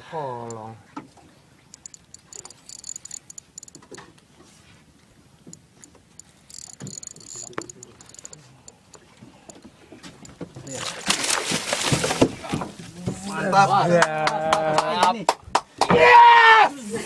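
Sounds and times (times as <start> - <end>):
fishing reel clicking: 1.7 - 3.9, 5.5 - 10.4.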